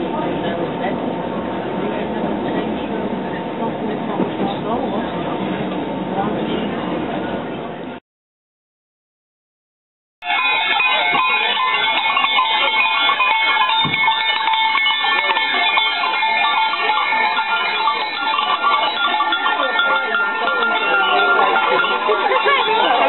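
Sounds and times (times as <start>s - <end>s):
goat bells jangling: 10.2s - 23.0s.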